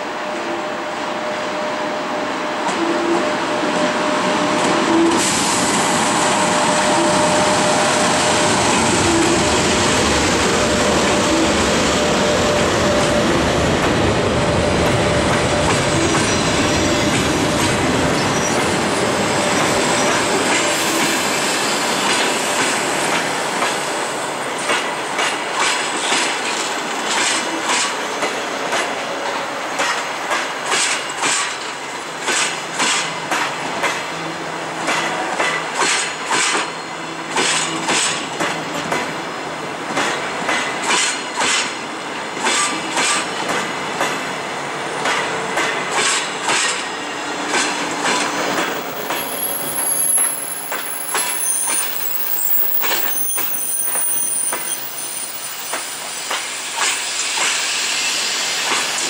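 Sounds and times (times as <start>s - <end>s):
train wheels clacking over rail joints: 24.6s - 34.2s, 34.8s - 39.2s, 39.9s - 44.3s, 44.9s - 55.0s, 55.6s - 57.8s, 58.6s - 59.0s.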